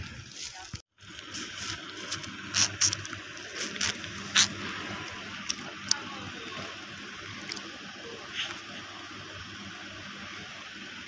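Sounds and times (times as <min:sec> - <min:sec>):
faint low engine hum: 0:00.0 - 0:11.0
steady hiss: 0:00.2 - 0:05.7.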